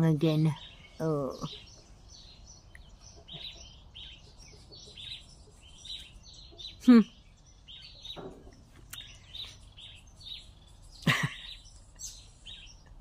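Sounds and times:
small birds chirping: 0.0 - 13.0
woman laughing: 11.0 - 11.7.

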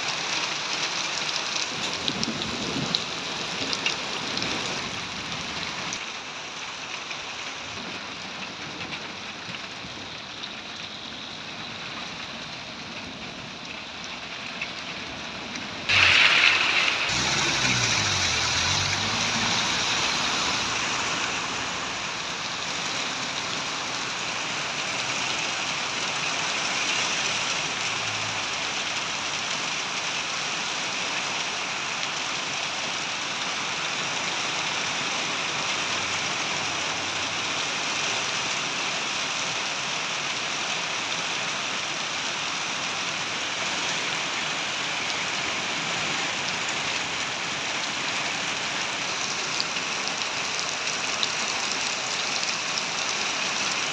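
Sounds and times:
heavy rain hissing on pavement: 0.0 - 53.9
van engine pulling away: 15.8 - 22.4
sudden loud rush: 15.9 - 22.0.

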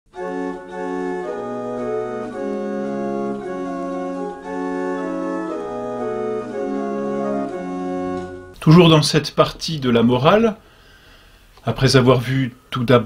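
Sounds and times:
organ playing slow chords: 0.1 - 8.7.

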